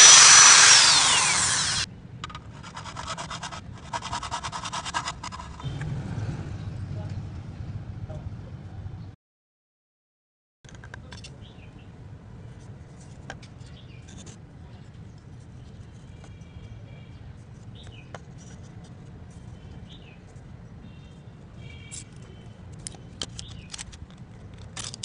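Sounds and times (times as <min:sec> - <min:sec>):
small birds chirping: 0:13.6 - 0:18.2, 0:19.4 - 0:23.8.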